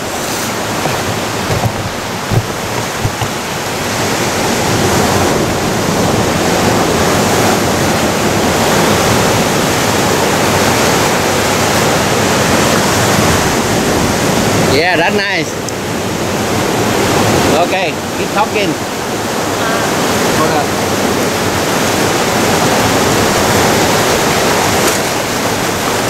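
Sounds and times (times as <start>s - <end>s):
ocean surf breaking on rocks: 0.0s - 26.0s
short knocks: 0.6s - 3.7s.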